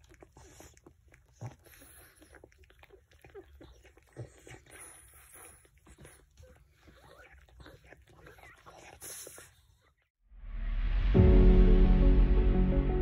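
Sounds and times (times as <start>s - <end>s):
puppies suckling: 0.0s - 10.1s.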